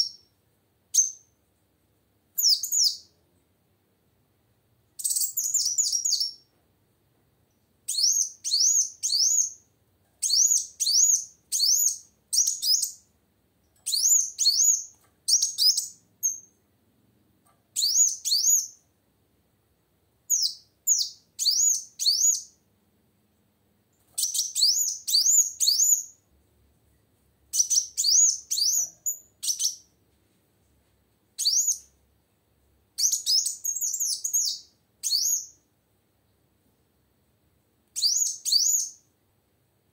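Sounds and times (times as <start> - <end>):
sunbird chirping: 2.3 - 3.2, 5.0 - 6.5, 7.5 - 13.1, 13.8 - 16.6, 17.8 - 18.8, 20.3 - 22.6, 24.1 - 26.2, 27.5 - 29.9, 31.4 - 32.0, 33.0 - 35.7, 38.0 - 39.1.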